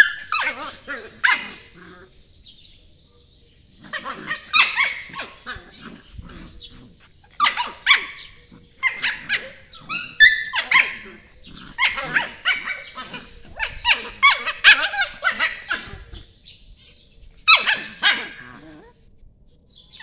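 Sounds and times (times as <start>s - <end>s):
puppies yelping and yipping: 0.0s - 1.8s, 3.8s - 16.2s, 17.5s - 19.0s.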